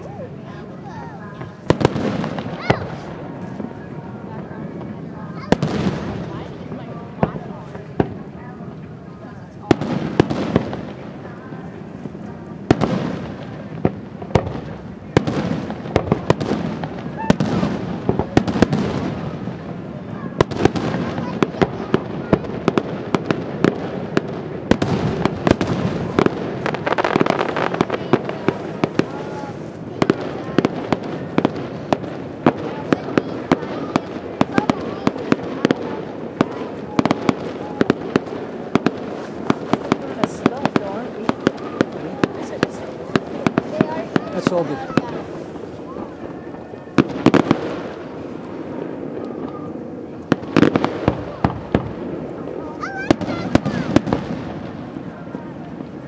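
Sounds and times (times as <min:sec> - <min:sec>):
fireworks bursting with sharp bangs: 0:00.0 - 0:56.0.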